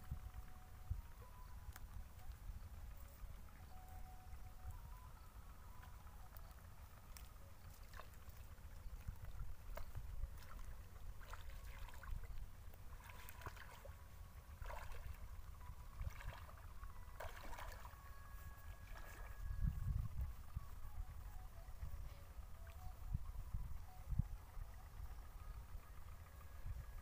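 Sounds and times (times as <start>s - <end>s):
steady low rumble: 0.0s - 27.0s
feet sloshing through water: 7.2s - 19.5s.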